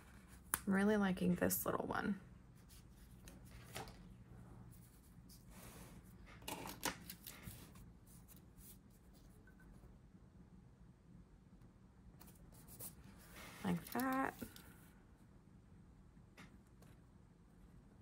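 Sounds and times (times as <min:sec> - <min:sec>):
paper sticker rustling: 0:13.5 - 0:14.6.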